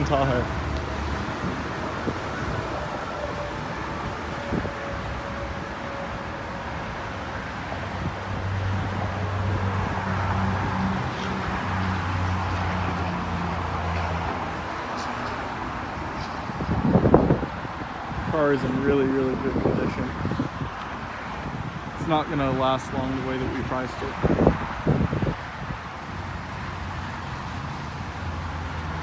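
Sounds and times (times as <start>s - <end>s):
distant traffic: 0.0s - 29.0s
wind on the microphone: 14.3s - 25.9s.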